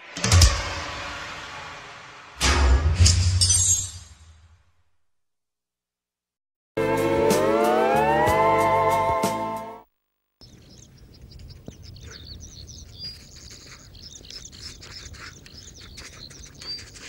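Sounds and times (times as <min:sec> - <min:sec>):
held music chord: 0:06.8 - 0:09.8
small birds chirping: 0:10.4 - 0:17.0.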